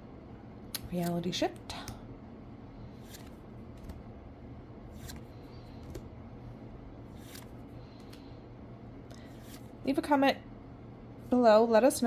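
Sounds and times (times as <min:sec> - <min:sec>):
faint low hum: 0:00.0 - 0:12.0
trading cards swishing: 0:02.9 - 0:04.0, 0:04.9 - 0:06.1, 0:07.1 - 0:08.3, 0:09.2 - 0:09.7.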